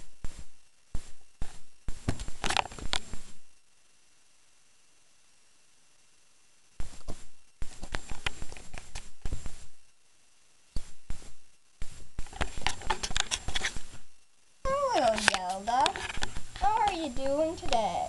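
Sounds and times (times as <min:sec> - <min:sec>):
scratchy rustling and knocking: 0:10.8 - 0:14.1.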